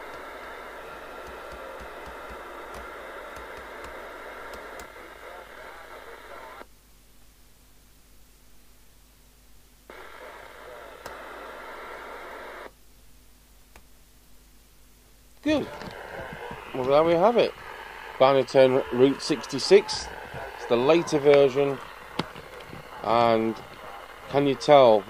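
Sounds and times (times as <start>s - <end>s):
faint voices over radio: 0.0s - 6.7s, 9.9s - 12.7s, 15.4s - 25.0s
radio static hiss: 0.0s - 25.0s.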